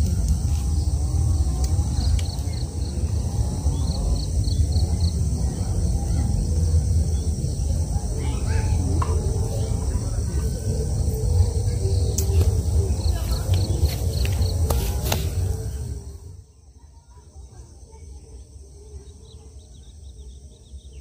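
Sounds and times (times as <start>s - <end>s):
steady low rumble: 0.0s - 16.7s.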